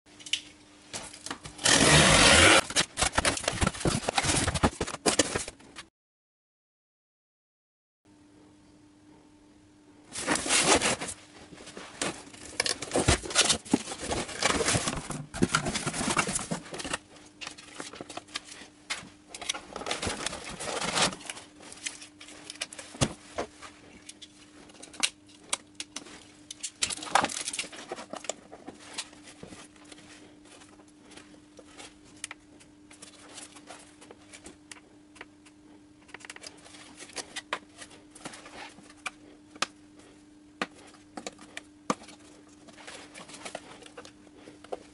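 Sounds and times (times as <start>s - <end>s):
cardboard rustling and scraping: 1.4s - 5.8s, 10.1s - 25.0s, 36.4s - 39.0s, 40.7s - 44.9s
faint steady hum: 8.1s - 44.9s.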